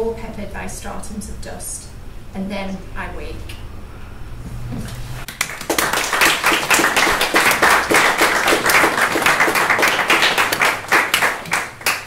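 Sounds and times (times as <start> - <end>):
audience applauding: 5.3 - 12.0.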